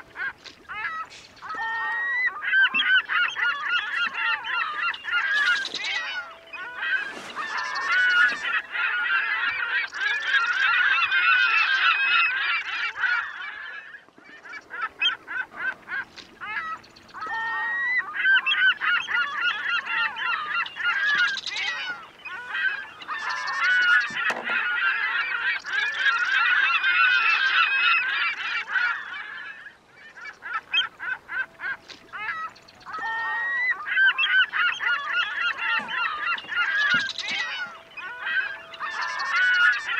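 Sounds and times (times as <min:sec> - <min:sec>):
flock of birds calling: 0:00.0 - 0:39.9.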